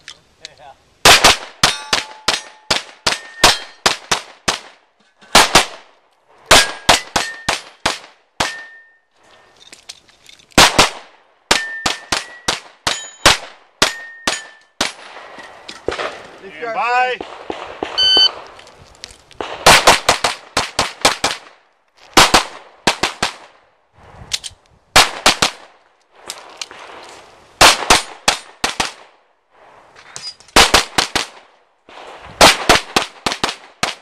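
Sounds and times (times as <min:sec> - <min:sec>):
rapid pistol fire: 0:01.0 - 0:04.8, 0:05.4 - 0:05.9, 0:06.5 - 0:08.7, 0:10.6 - 0:13.6, 0:17.2 - 0:18.4, 0:19.4 - 0:21.6, 0:22.2 - 0:23.6, 0:25.0 - 0:25.7, 0:27.6 - 0:29.1, 0:32.4 - 0:34.0
bullets dinging on steel targets: 0:01.6 - 0:03.9, 0:06.5 - 0:07.8, 0:08.4 - 0:09.1, 0:11.5 - 0:14.8.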